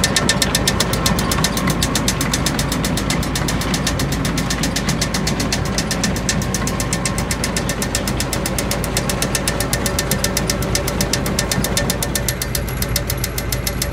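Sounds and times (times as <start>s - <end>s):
farm machinery humming: 0.0s - 13.9s
rapid even knocking: 0.0s - 13.9s.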